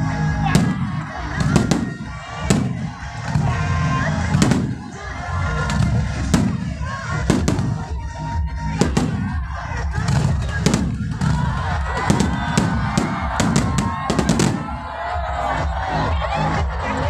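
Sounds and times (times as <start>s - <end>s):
loud music with heavy beat: 0.0s - 17.0s
fireworks bangs: 0.5s - 8.1s, 8.7s - 15.2s.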